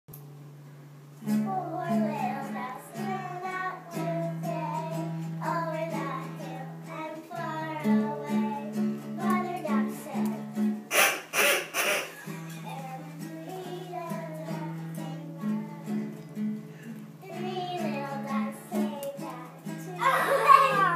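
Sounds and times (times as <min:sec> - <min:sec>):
children singing: 0:01.5 - 0:16.1, 0:17.2 - 0:20.9
instrumental accompaniment: 0:07.4 - 0:20.1
loud noisy bursts: 0:10.9 - 0:12.3.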